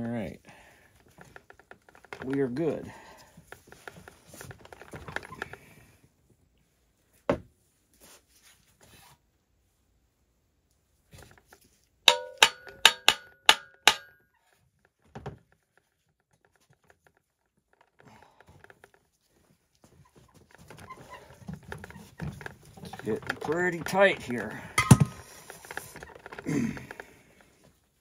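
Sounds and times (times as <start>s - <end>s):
mallet tapping on metal: 12.1s - 14.1s.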